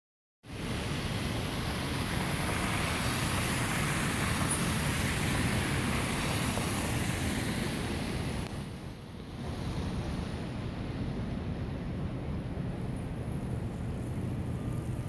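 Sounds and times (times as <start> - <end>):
street traffic noise: 0.4 - 15.0
tyres hissing through slush: 0.5 - 8.8.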